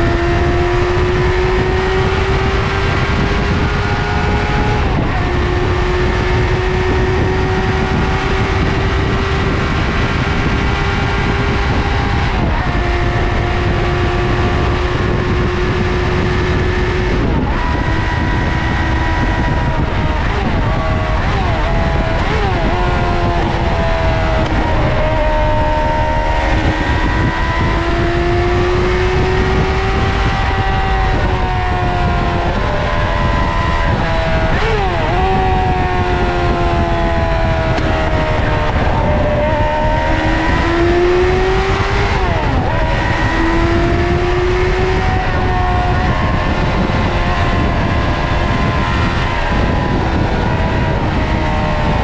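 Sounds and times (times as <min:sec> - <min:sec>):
motorcycle engine accelerating: 0:00.0 - 0:52.0
low rushing noise: 0:17.2 - 0:30.2, 0:31.3 - 0:45.0.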